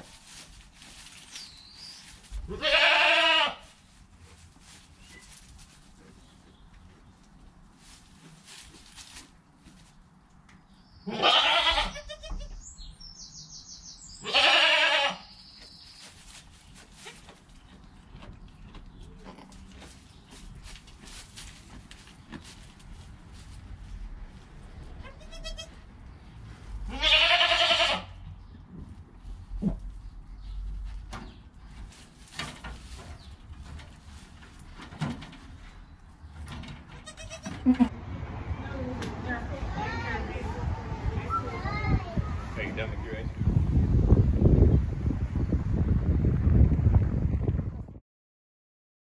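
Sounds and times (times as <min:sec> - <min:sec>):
goat bleating: 0:02.5 - 0:03.6, 0:11.0 - 0:12.6, 0:14.2 - 0:15.3, 0:25.0 - 0:25.8, 0:26.9 - 0:28.2, 0:37.0 - 0:37.9
low rumble: 0:37.9 - 0:48.0.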